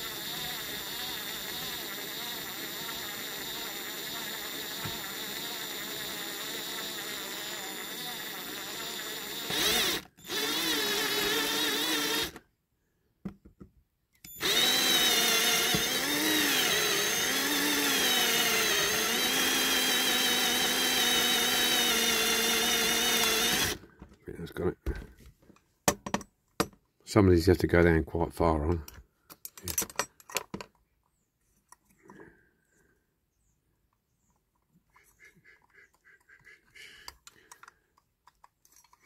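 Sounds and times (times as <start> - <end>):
cordless drill whirring: 0.0 - 12.5, 14.3 - 24.0.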